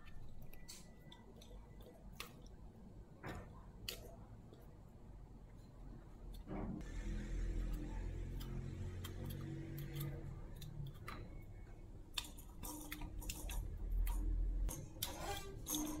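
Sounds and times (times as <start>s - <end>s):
toy rattle: 14.7s - 16.0s.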